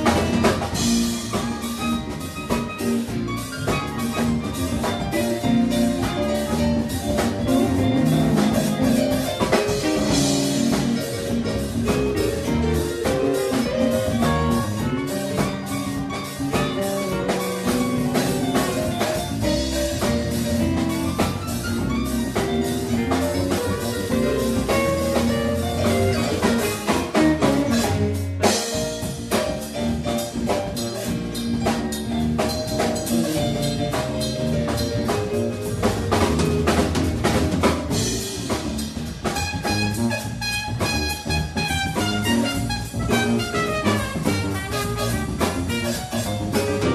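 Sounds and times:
bass guitar: 0.0 - 46.9
drum kit: 0.0 - 46.9
electric guitar: 0.0 - 46.9
trumpet: 39.2 - 46.9.

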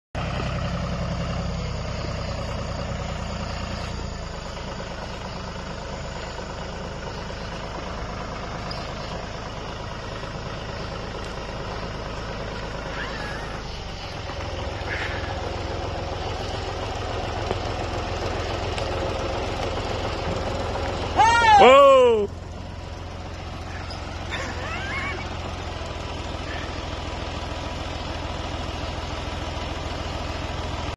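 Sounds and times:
tractor engine running: 0.2 - 30.9.

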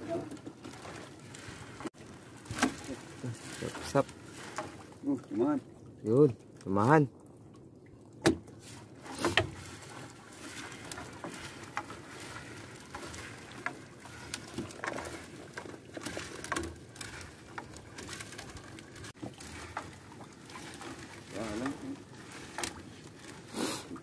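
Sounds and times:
fishing net knocks and rustles: 0.0 - 5.0, 8.2 - 24.0.

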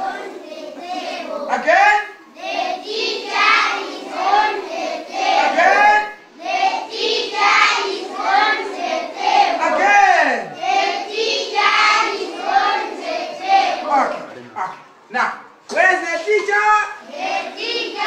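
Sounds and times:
children singing in unison: 0.0 - 1.5, 2.3 - 5.6, 6.3 - 9.8, 10.6 - 13.9, 17.0 - 18.0.

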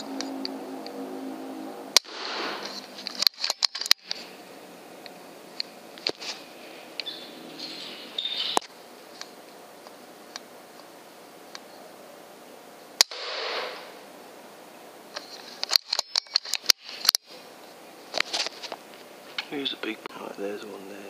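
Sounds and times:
air rifle shot: 2.0 - 2.8, 13.0 - 14.0.

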